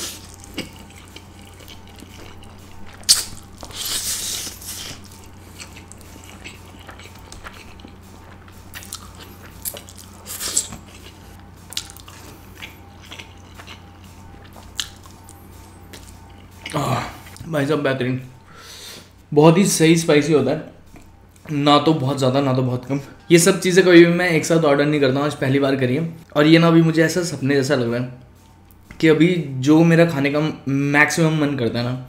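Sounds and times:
chewing and mouth clicks: 0.0s - 17.4s, 20.9s - 21.5s
fan humming: 0.0s - 32.0s.

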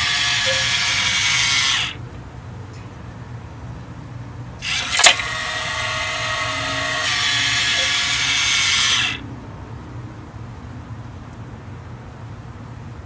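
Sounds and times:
electric motor and gearing whirring: 0.0s - 2.0s, 4.6s - 9.3s
sharp click: 4.6s - 5.5s.

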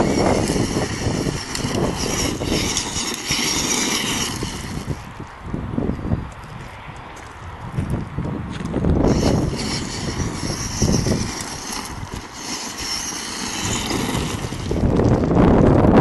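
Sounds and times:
electric motors whining: 0.0s - 5.1s, 9.0s - 15.4s
tyres crunching over gravel: 0.0s - 5.4s, 6.3s - 15.4s
wind buffeting microphone: 0.0s - 16.0s.

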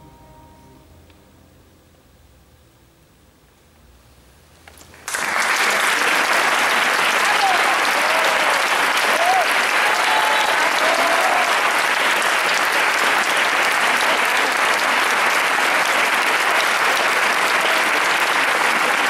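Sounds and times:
audience applauding: 4.9s - 19.0s.

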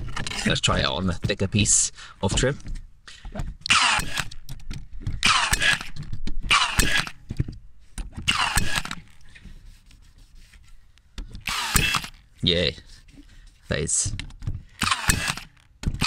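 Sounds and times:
nail gun motor whir: 3.6s - 7.4s, 8.1s - 9.2s, 11.4s - 12.3s, 14.8s - 16.0s
nail gun firing into wood: 3.7s - 4.6s, 5.2s - 7.2s, 8.2s - 9.1s, 11.4s - 12.2s, 14.8s - 16.0s.

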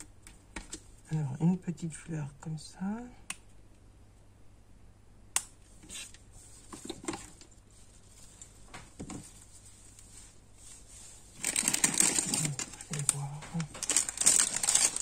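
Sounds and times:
plastic bag crinkling: 7.3s - 15.0s.

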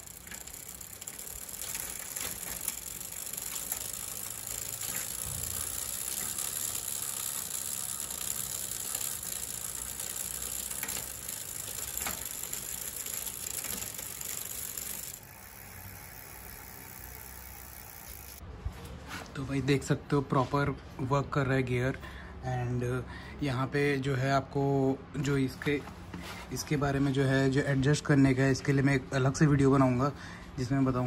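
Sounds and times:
bicycle chain whirring: 0.0s - 18.4s.

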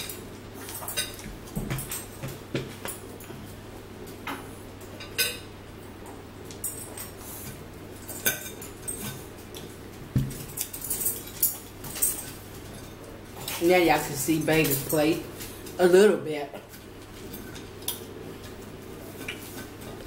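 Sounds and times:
cutlery clinking on plates: 0.0s - 3.0s, 4.3s - 5.5s, 6.6s - 13.6s.

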